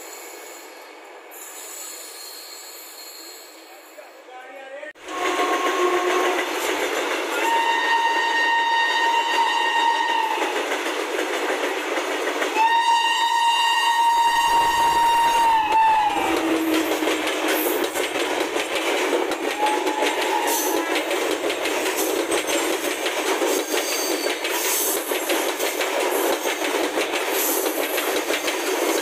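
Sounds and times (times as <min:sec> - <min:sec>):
locomotive horn blasts: 0:05.0 - 0:06.4, 0:07.4 - 0:10.4, 0:12.6 - 0:16.9
train wheels clattering: 0:05.1 - 0:29.0
deep locomotive rumble: 0:13.4 - 0:22.0.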